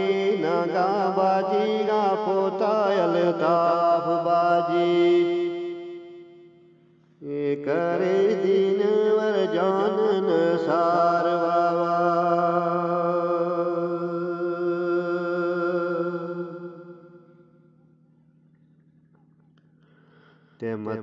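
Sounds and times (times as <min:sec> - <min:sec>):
man singing chant-like melody: 0:00.0 - 0:06.1, 0:07.2 - 0:17.0, 0:20.6 - 0:21.0.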